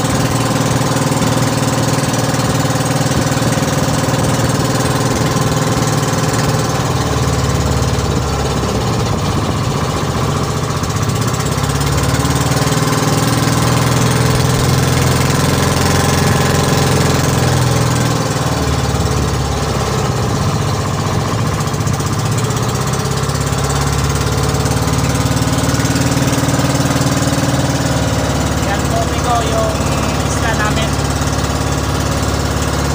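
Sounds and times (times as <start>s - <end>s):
boat engine running: 0.0s - 32.9s.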